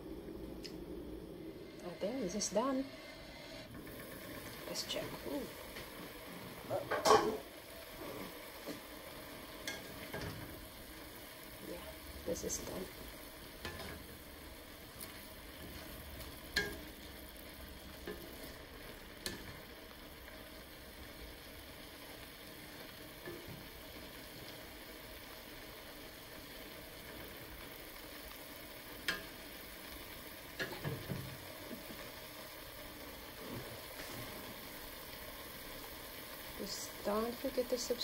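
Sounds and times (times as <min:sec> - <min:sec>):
vegetables sizzling in a pan: 0:00.0 - 0:38.0.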